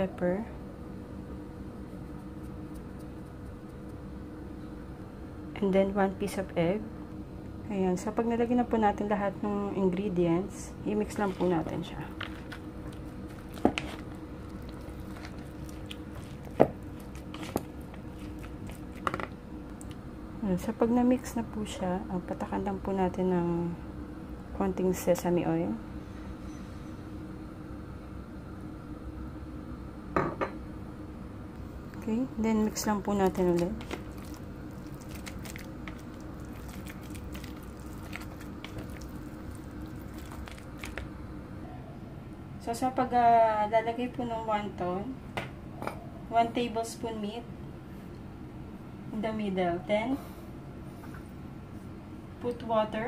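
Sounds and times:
steady low hum: 0.0s - 53.0s
spatula squishing meat filling: 11.0s - 19.2s, 32.6s - 41.2s.

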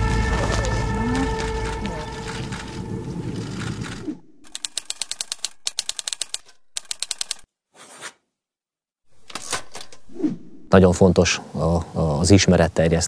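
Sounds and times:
typewriter keys clacking: 4.5s - 7.4s.

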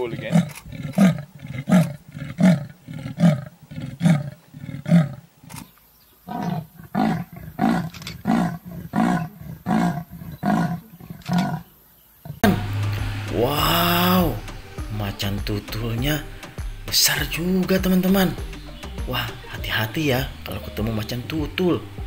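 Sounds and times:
leopard rasping grunts: 0.0s - 5.7s, 6.3s - 12.4s.

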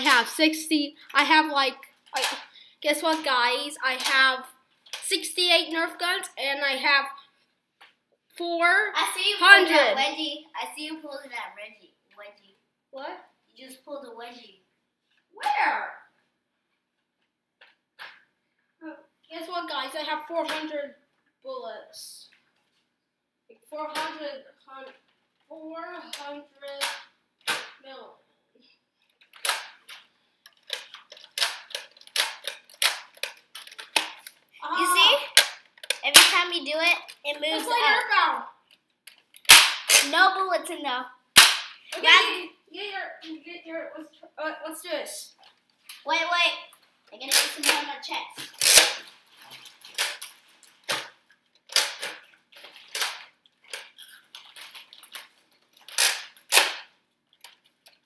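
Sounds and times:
toy blaster plastic clacks: 29.3s - 34.4s, 35.3s - 36.4s, 47.3s - 49.1s, 51.7s - 57.6s
toy blaster plastic clicks: 48.5s - 49.1s, 55.9s - 56.9s.

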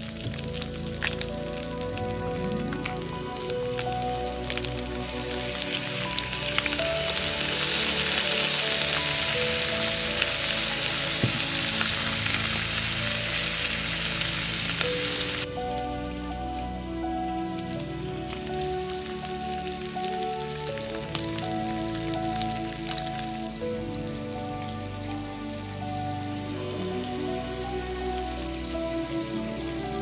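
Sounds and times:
fish sizzling in butter: 0.0s - 30.0s.

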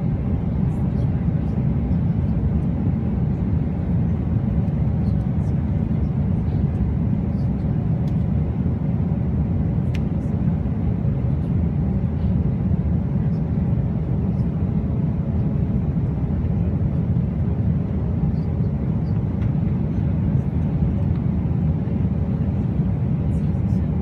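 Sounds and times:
airliner cabin engine rumble: 0.0s - 24.0s.

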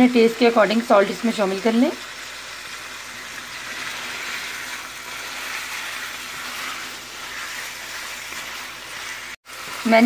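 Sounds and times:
meat sizzling in a pan: 0.0s - 10.0s
spatula stirring in a pan: 0.5s - 10.0s.

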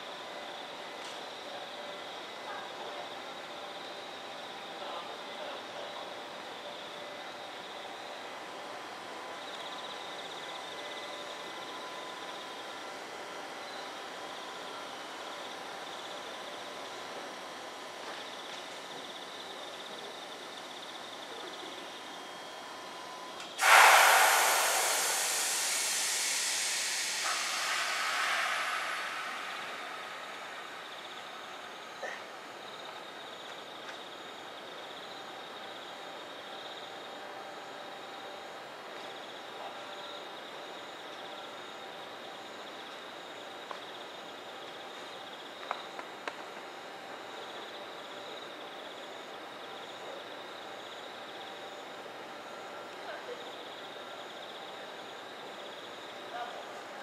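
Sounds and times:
loud compressed air hiss: 23.6s - 32.2s
background hum: 23.6s - 57.0s
insects trilling: 24.3s - 37.1s.

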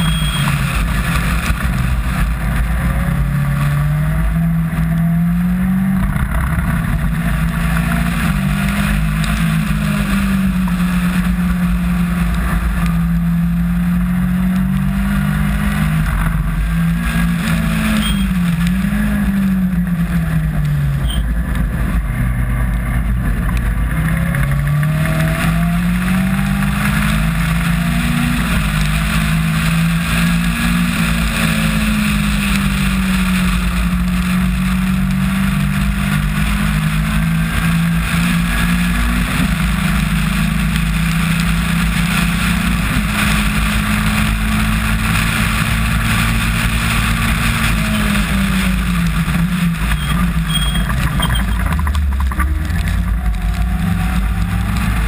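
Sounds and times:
race car engine revving: 0.0s - 55.0s
wind and wet road hiss: 26.0s - 49.9s.

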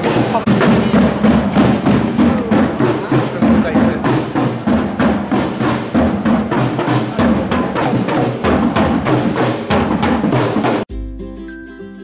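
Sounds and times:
drum band playing: 0.0s - 11.2s.

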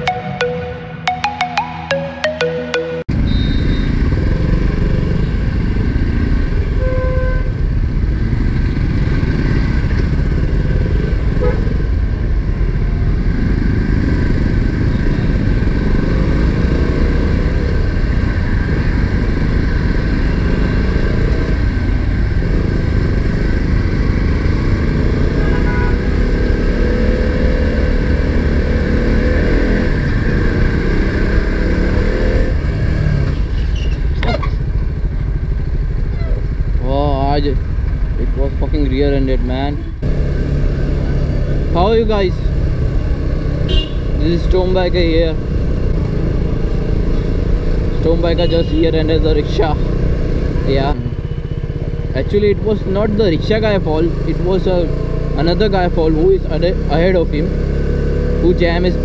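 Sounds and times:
motorcycle engine rumble: 29.7s - 58.4s.

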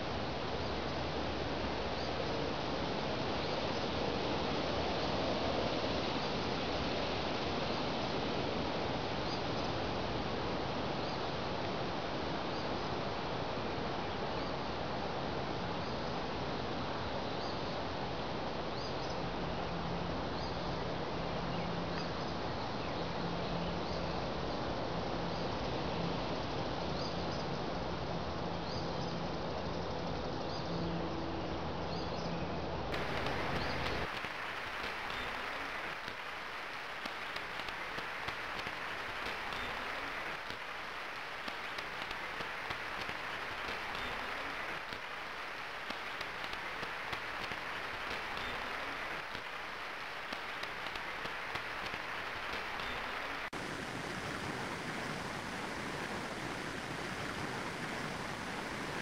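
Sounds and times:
rain hissing: 32.9s - 59.0s.

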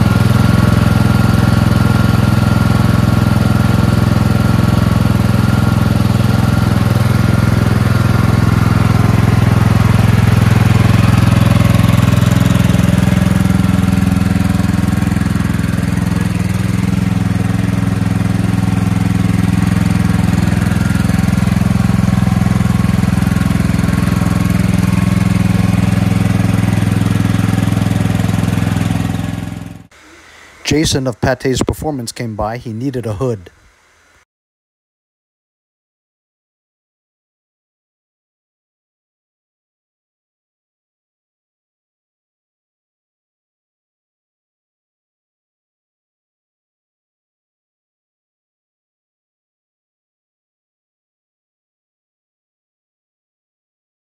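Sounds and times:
small gasoline engine running: 0.0s - 30.9s.

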